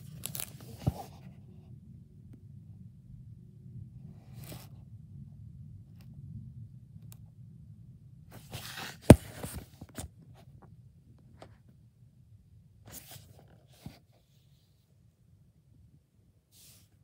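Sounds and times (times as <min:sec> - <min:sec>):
plastic case rustling: 0:08.4 - 0:10.1.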